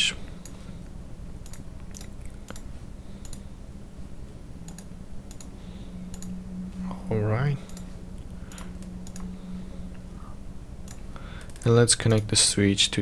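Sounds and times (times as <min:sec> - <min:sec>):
low electrical hum: 0:00.0 - 0:13.0
computer mouse clicking: 0:01.4 - 0:03.5, 0:04.6 - 0:06.4, 0:07.6 - 0:09.4, 0:10.8 - 0:12.3.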